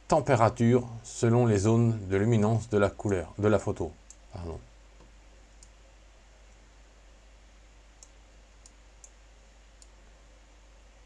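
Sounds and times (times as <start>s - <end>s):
low room hum: 0.0s - 11.0s
faint computer mouse clicks: 8.0s - 9.2s, 9.8s - 10.0s.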